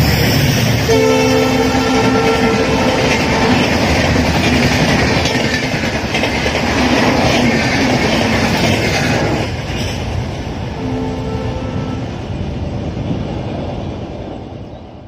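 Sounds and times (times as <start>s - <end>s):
train passing at speed: 0.0s - 15.0s
wheels clacking over rail joints: 1.8s - 10.6s.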